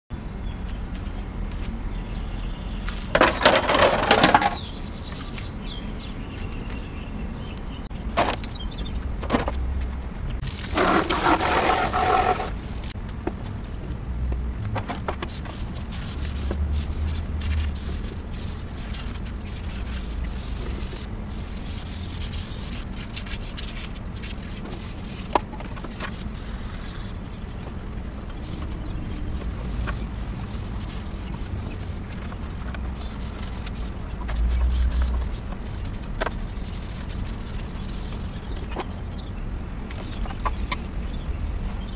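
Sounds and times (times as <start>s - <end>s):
sandpaper scrubbing plastic: 10.4s - 12.6s, 15.2s - 27.2s, 28.3s - 38.8s.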